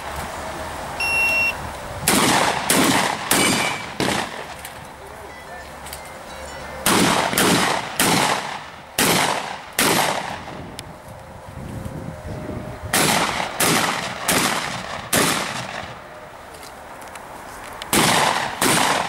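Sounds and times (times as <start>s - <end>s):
shotgun shots: 2.1s - 4.6s, 6.9s - 10.6s, 12.9s - 16.0s, 17.9s - 19.0s.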